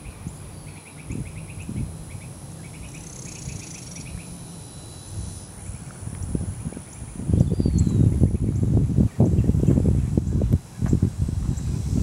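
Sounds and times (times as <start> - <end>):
faint bird chirps: 0.0 - 5.9, 6.6 - 10.2
low rumbling microphone noise: 0.0 - 12.0.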